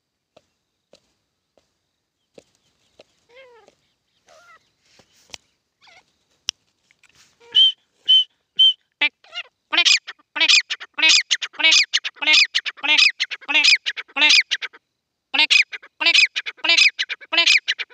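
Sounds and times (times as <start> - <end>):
harsh repeated bird calls: 3.2 - 5.2, 7.4 - 14.8, 15.4 - 17.9
bird whistled notes: 7.5 - 8.8.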